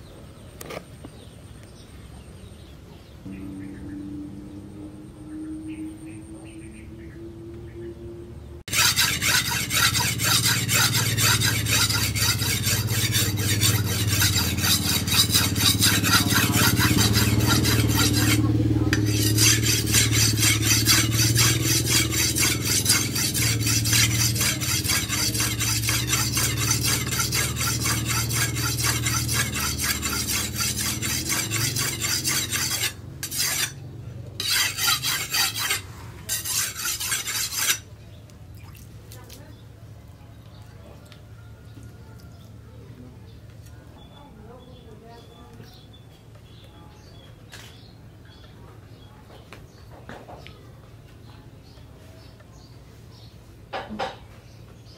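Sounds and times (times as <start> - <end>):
blade scraping on whetstone: 8.7 - 37.9.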